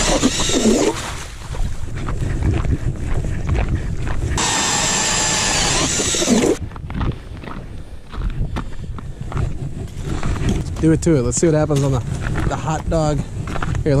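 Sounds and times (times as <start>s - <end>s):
cordless drill motor whining: 0.0s - 0.8s, 4.4s - 6.6s
ice auger rumbling through ice: 0.0s - 1.2s, 4.4s - 6.6s.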